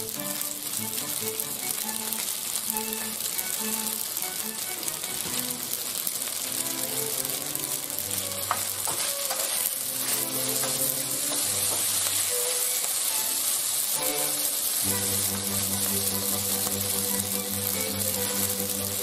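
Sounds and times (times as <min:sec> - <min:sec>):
background music: 0:00.0 - 0:05.8, 0:14.0 - 0:19.0
pasta sizzling in oil: 0:00.0 - 0:19.0
wooden spoon clicking on pan: 0:08.3 - 0:09.7, 0:10.4 - 0:12.2.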